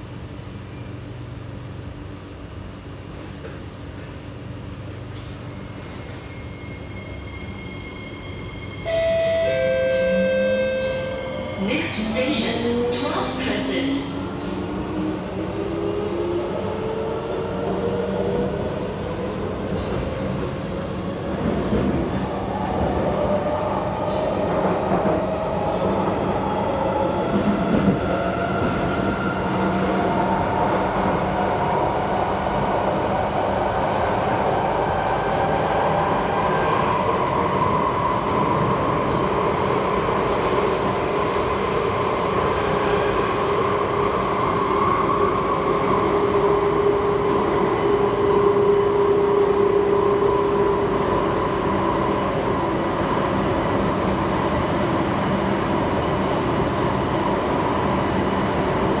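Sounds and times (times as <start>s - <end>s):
train wheels rumbling on track: 11.9s - 59.0s.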